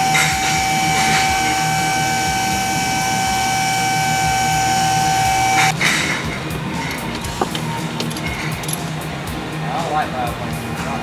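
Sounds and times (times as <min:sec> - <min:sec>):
hydraulic pump motor whining: 0:00.0 - 0:05.8.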